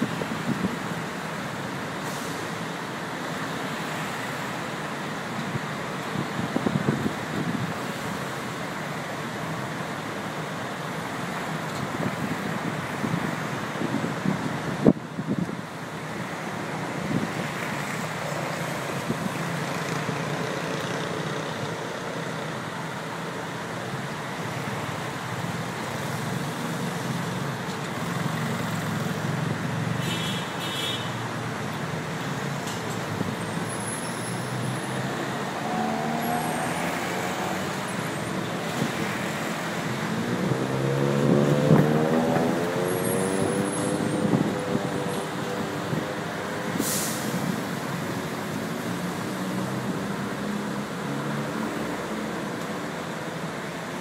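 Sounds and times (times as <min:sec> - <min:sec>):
engines and tyres: 0:00.0 - 0:54.0
vehicle engine accelerating: 0:34.9 - 0:37.8, 0:40.0 - 0:45.1.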